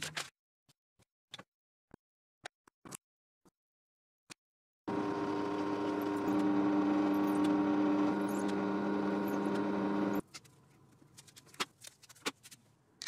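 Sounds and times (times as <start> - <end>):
drill press motor boring wood: 4.9 - 10.2.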